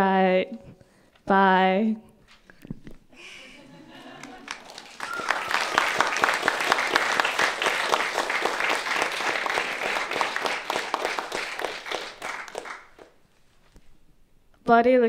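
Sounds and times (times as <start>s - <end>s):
audience applause: 4.0s - 13.2s.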